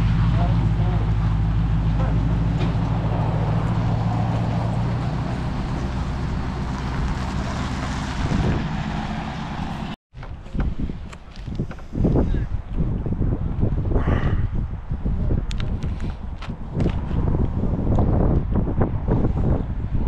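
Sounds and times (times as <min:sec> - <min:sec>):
motorcycle engine running: 0:00.0 - 0:08.6.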